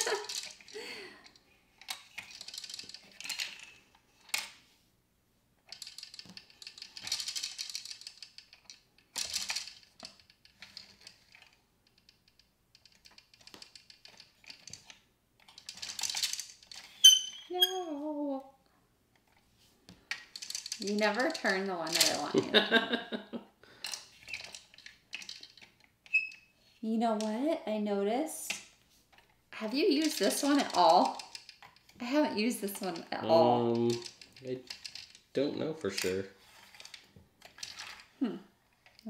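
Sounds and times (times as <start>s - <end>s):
plastic tokens clattering: 0.0s - 1.2s, 1.8s - 4.6s, 5.7s - 17.3s, 20.1s - 22.6s, 29.7s - 38.1s
plastic gears clicking and rattling: 0.0s - 4.6s, 5.6s - 17.4s, 20.0s - 22.4s, 23.8s - 26.4s, 28.5s - 39.0s.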